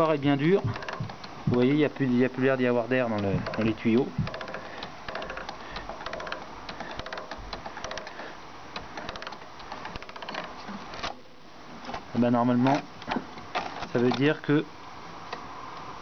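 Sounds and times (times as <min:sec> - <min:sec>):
hands clicking and rustling: 0:00.0 - 0:11.2.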